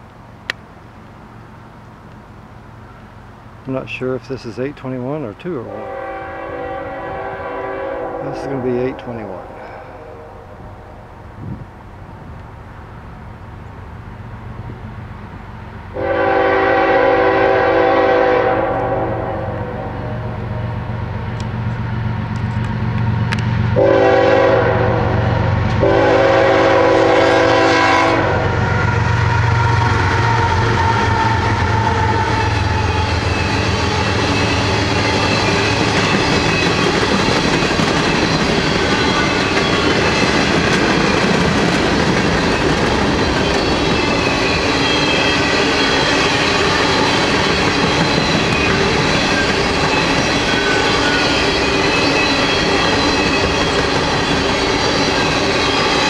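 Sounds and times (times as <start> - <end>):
diesel locomotives rumbling past: 0.0 - 56.0
locomotive horn blasts: 5.7 - 10.8, 16.0 - 20.6, 23.8 - 33.2.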